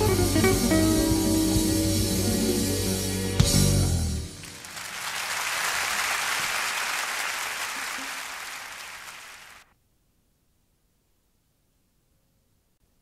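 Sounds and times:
jazz guitar band playing: 0.0 - 4.0
audience applause: 4.3 - 9.7.

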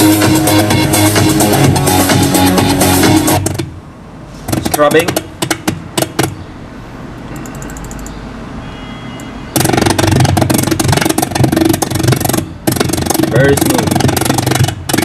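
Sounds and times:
choppy stuttering audio snippets: 9.6 - 15.0.

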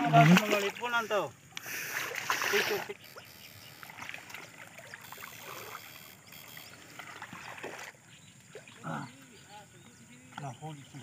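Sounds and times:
wading through shallow water: 0.0 - 11.0
small ticks: 1.5 - 1.7, 2.9 - 7.4.

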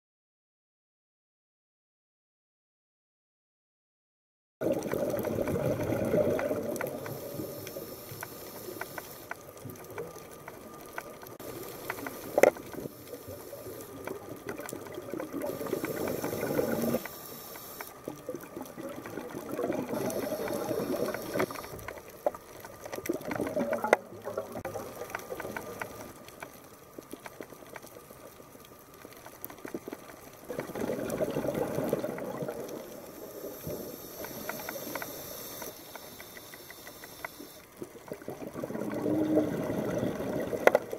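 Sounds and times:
diver's bubbles gurgling underwater: 4.6 - 7.7, 12.2 - 17.1, 18.0 - 21.8, 22.8 - 26.1, 30.5 - 35.1, 37.8 - 40.9.

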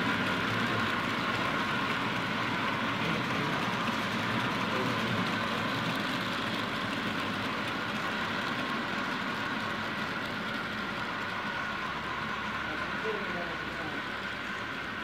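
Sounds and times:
model train wheels on rails: 0.0 - 15.0.

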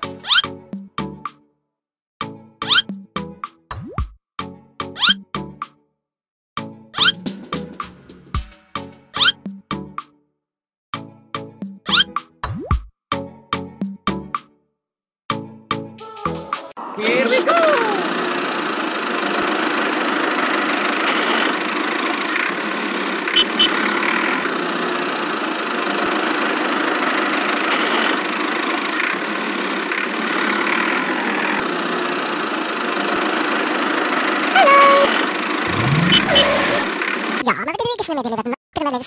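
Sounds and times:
toy tractor motor running: 17.0 - 37.4
gliding chirpy tones: 34.9 - 36.9.

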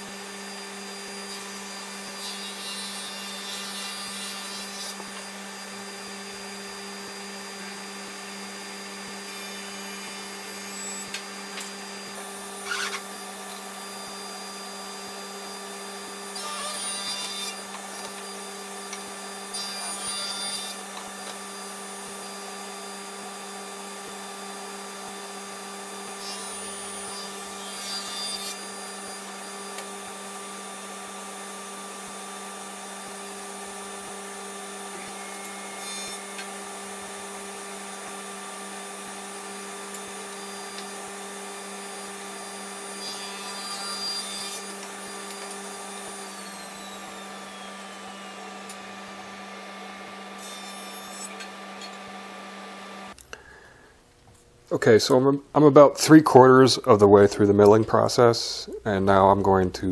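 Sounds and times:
table saw humming: 0.0 - 53.9
wood sawing and scraping: 0.9 - 6.6, 9.1 - 22.4, 26.0 - 53.1.

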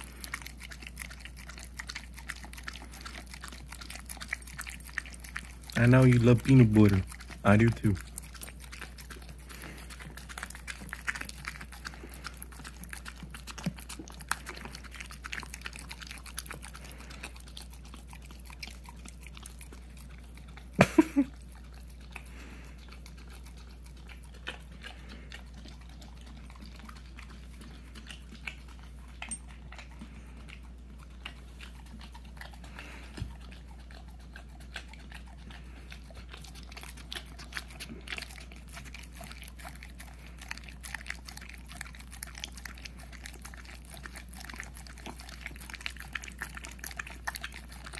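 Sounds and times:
dog licking and smacking: 0.0 - 47.9.

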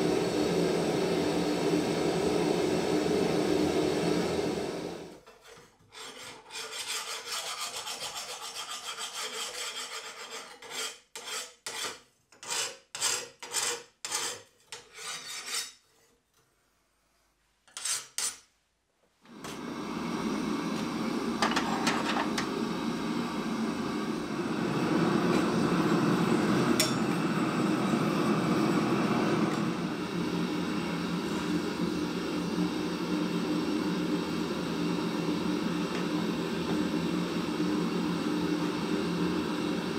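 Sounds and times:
gas forge burner rushing: 0.0 - 5.3, 19.3 - 39.9
file rasping on steel blade: 5.2 - 16.1, 17.7 - 18.5.

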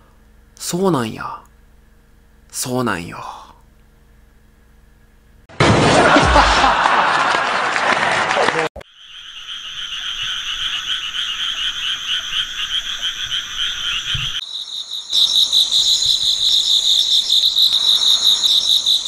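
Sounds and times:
chorus of small animals trilling: 15.1 - 19.0.

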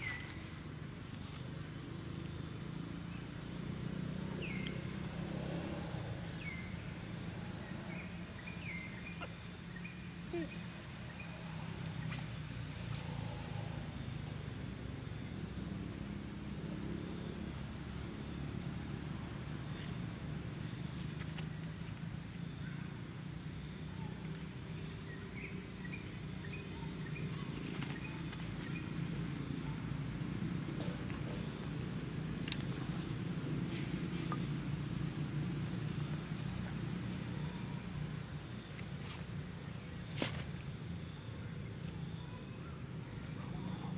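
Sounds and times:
insects droning: 0.0 - 43.9
faint ticks and rustles: 0.1 - 2.3.

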